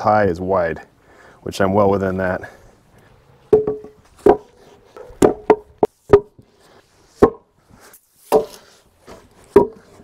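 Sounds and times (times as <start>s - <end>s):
hollow wooden knocks: 3.5s - 6.5s, 7.2s - 7.6s, 9.4s - 10.0s.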